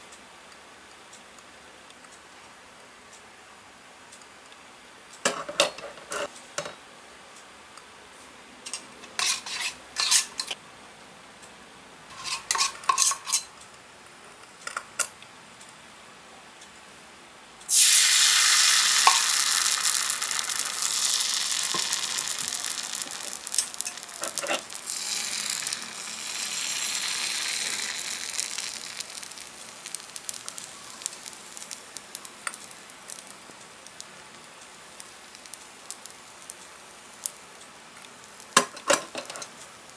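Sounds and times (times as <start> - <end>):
pan and utensils clinking: 8.7 - 10.6, 12.1 - 13.5, 18.8 - 29.0
batter sizzling in hot oil: 17.7 - 39.9.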